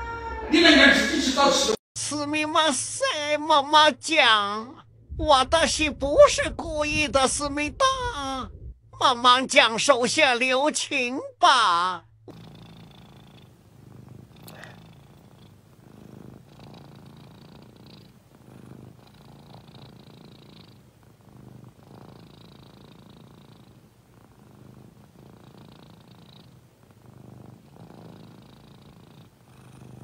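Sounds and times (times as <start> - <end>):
cat purring: 12.2 - 30.0.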